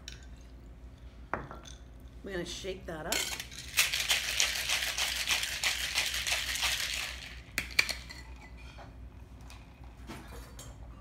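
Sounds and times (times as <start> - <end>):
ice rattling in cocktail shaker: 3.2 - 8.4.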